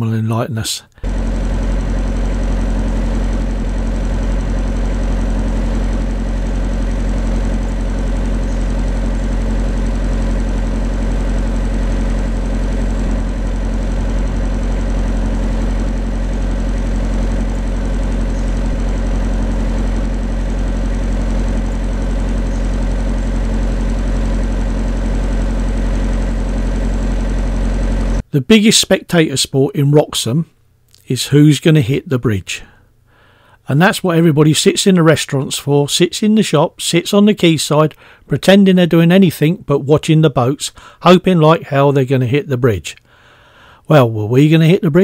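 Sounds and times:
boat engine humming: 0:00.9 - 0:28.5.

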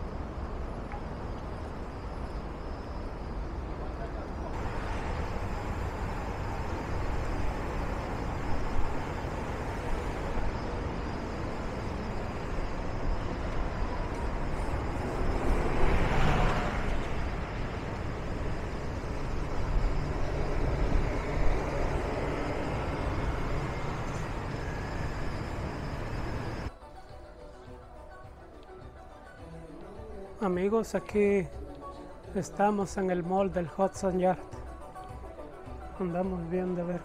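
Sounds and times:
rumble of passing vehicles: 0:00.0 - 0:26.7
vehicle passing close: 0:14.4 - 0:26.0.

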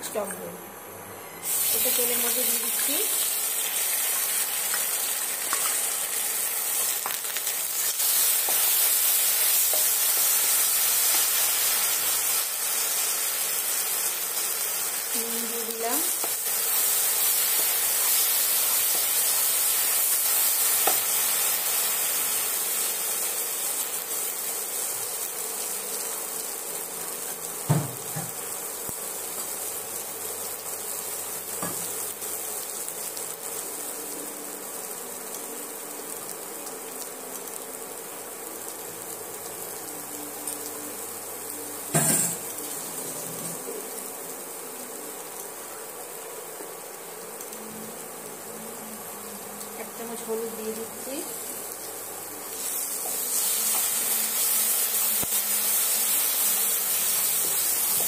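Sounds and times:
spice paste sizzling in oil: 0:01.4 - 0:58.0.

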